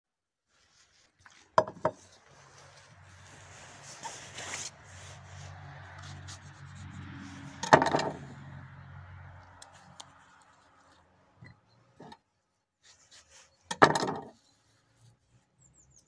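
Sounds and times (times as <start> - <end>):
hands rubbing a tomato: 0.5 - 7.6, 9.4 - 11.1, 12.8 - 13.7.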